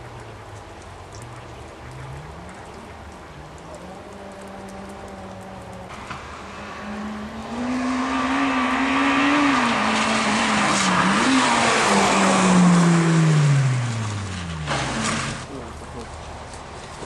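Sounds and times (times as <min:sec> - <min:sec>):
tyres hissing on wet asphalt: 0:00.0 - 0:17.0
rally car engine passing: 0:04.2 - 0:15.5.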